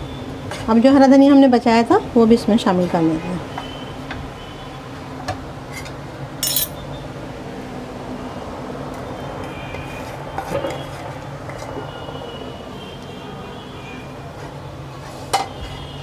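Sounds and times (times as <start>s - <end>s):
sharp clink: 6.4s - 6.8s.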